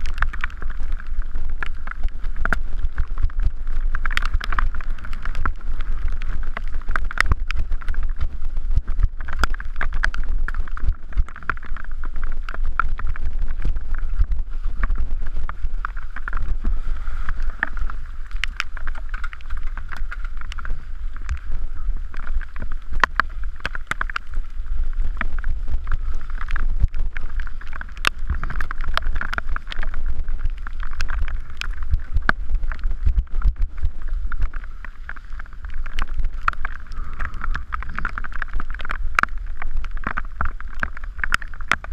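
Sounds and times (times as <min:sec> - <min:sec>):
bike knocking over rocks: 0:00.0 - 0:21.5
bike rattling: 0:00.0 - 0:41.9
wind rumbling on microphone: 0:00.0 - 0:41.9.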